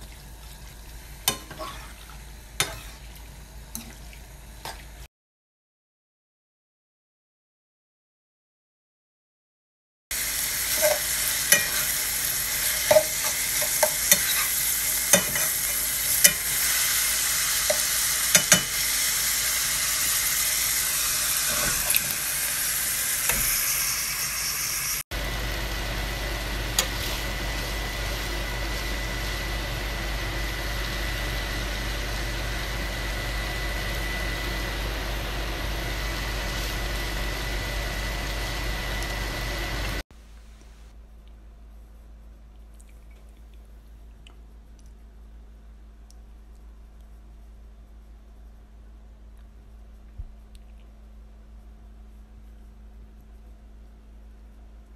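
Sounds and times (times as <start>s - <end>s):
food sizzling in pan: 10.1s - 40.0s.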